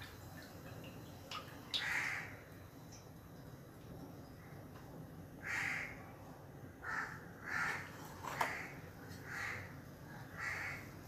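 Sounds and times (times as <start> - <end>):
crow cawing: 1.8 - 2.3, 5.4 - 6.0, 6.8 - 9.7, 10.3 - 10.9.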